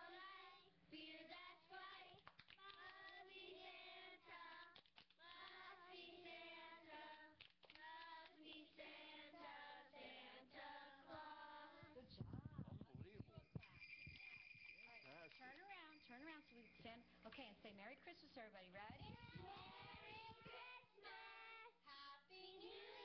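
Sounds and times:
children singing: 0:19.4 - 0:23.0.

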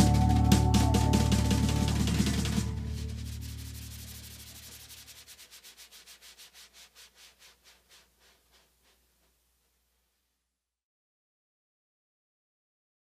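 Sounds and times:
low bass note: 0:00.0 - 0:04.2
percussion beat: 0:00.0 - 0:05.5.

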